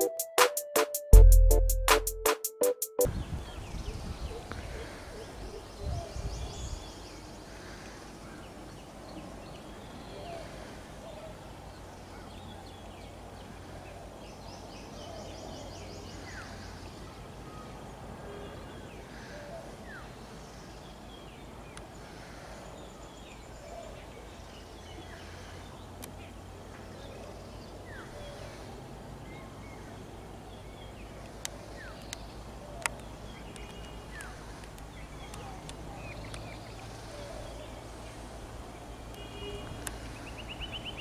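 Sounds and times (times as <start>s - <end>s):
birds chirping: 29.3s - 41.0s.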